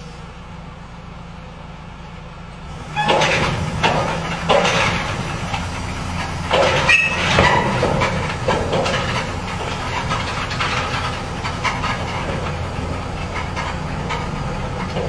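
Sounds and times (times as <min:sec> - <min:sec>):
truck engine running low: 0:00.0 - 0:15.0.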